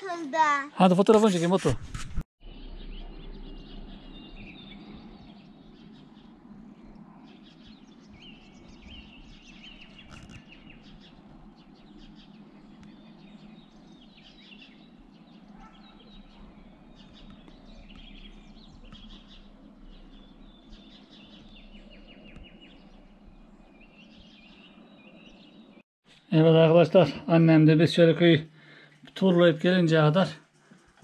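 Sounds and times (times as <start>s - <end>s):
small birds chirping: 2.4s - 31.0s
low background hum: 2.5s - 25.8s.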